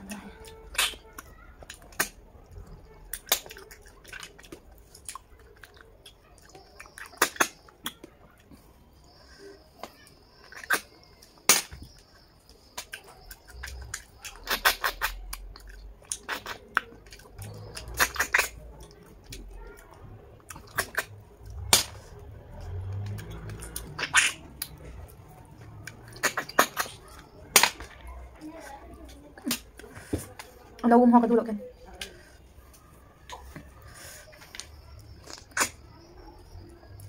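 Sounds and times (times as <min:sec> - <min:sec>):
chewing: 0:00.0 - 0:30.9, 0:31.8 - 0:37.0
sucking and slurping: 0:12.0 - 0:30.7, 0:32.3 - 0:37.0.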